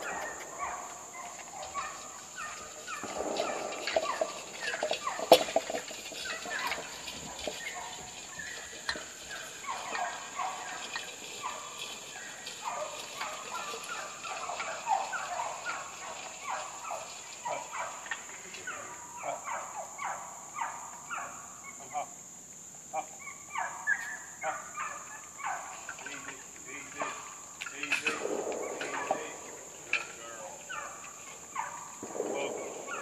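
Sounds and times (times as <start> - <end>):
fowl clucking and gobbling: 0.0 - 22.0, 22.8 - 33.0.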